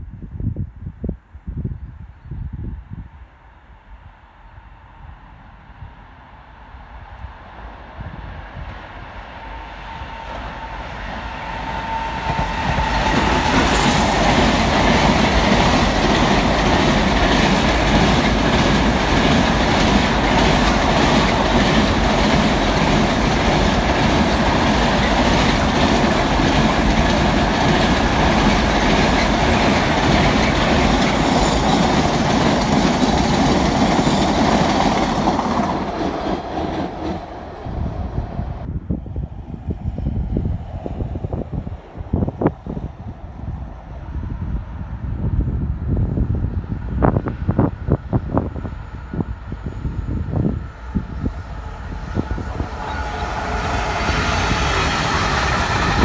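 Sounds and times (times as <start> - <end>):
locomotive high steady tone: 9.0 - 38.7, 46.5 - 56.0
freight wagons rumbling over rails: 10.2 - 38.7, 49.6 - 56.0.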